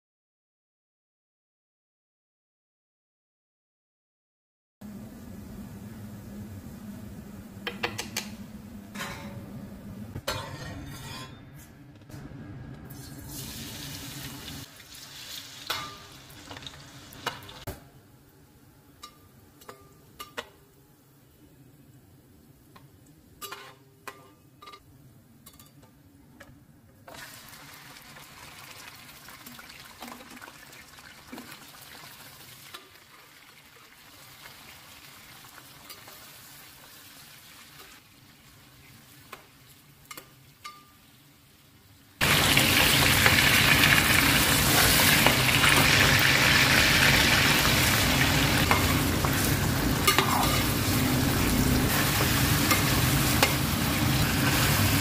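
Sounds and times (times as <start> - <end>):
spoon clinking against pot: 10.3 - 11.4, 19.0 - 20.6, 23.4 - 25.9, 40.1 - 41.0
chicken frying in hot oil: 13.0 - 17.7, 27.1 - 55.0.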